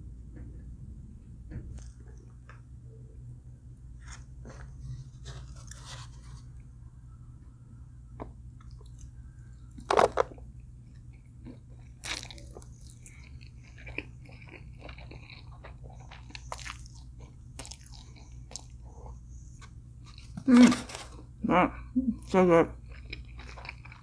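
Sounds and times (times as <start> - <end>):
steady low hum: 0.0 - 24.0
person chewing and crunching: 8.6 - 21.3, 22.8 - 24.0.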